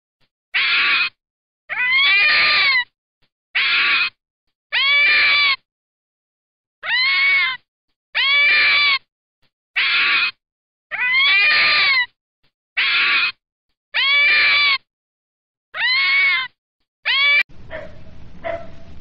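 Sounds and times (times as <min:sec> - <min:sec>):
fox whining calls: 0:09.8 - 0:12.0.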